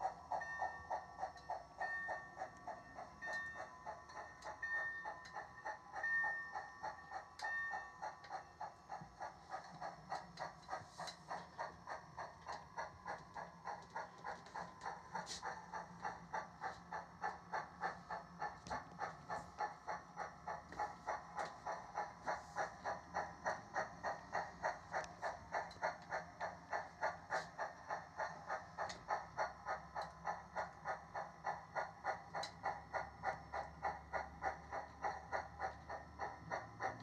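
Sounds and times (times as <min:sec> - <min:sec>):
model steam locomotive chuffing: 0:00.0 - 0:37.0.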